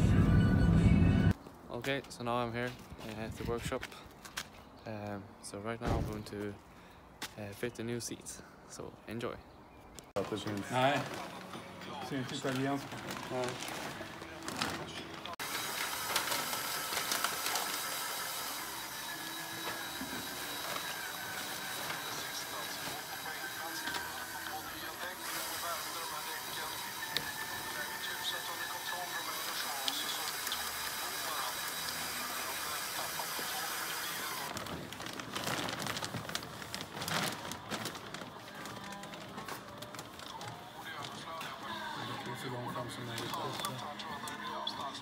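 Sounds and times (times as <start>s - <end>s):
plastic sheeting crinkling: 10.2s - 45.0s
cordless drill mixing liquid: 15.4s - 34.5s.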